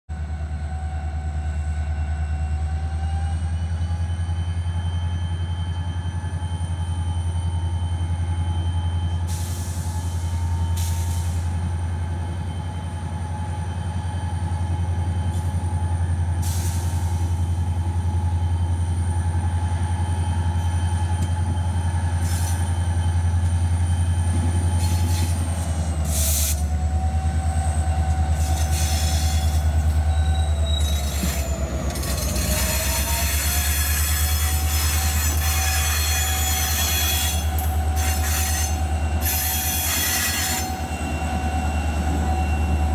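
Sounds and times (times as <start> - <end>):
diesel locomotive engine drone: 0.1 - 42.9
high-pitched wheel squeal: 28.4 - 42.9.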